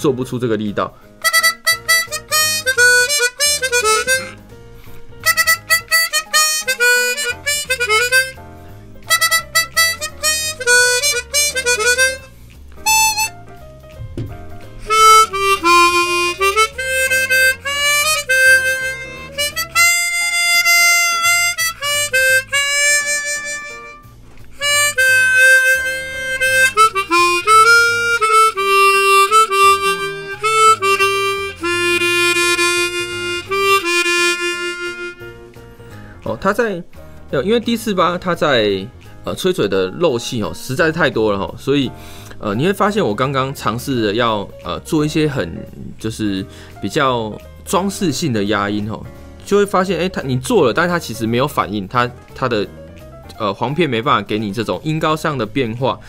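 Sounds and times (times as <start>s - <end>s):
chromatic harmonica playing: 1.2s - 36.0s.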